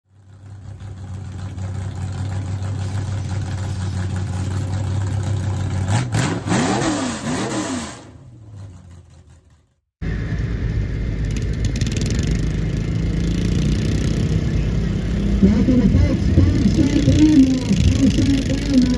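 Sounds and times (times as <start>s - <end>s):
engine idling and revving: 0.0s - 18.9s
tractor engine idling: 0.1s - 5.9s, 8.2s - 11.8s, 15.4s - 18.9s.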